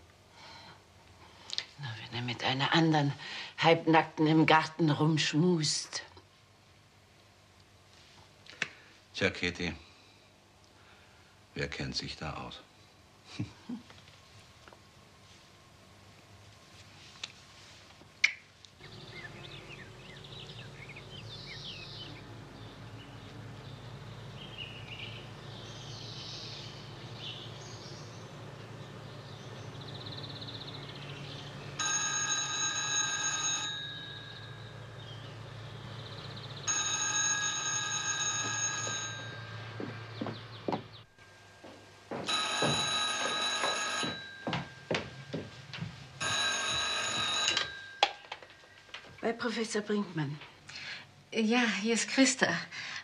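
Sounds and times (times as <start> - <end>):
telephone bell ringing: 31.7 - 35.1, 36.7 - 39.8, 42.3 - 45.6, 46.2 - 48.5.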